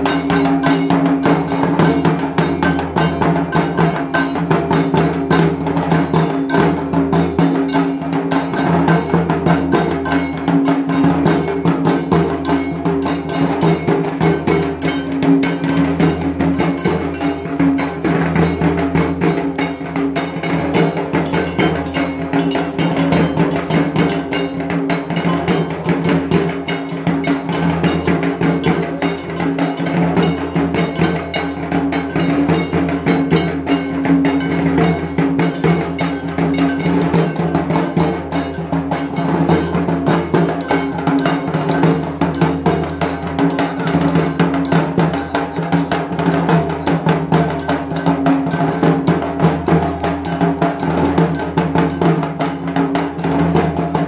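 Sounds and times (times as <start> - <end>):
barrel drums beaten fast: 0.0 - 54.0.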